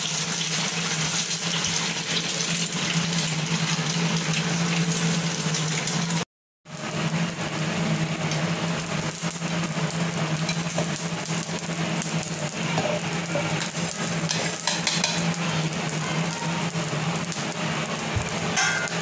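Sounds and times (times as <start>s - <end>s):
steel plate clinking on metal jar: 18.6s - 19.0s.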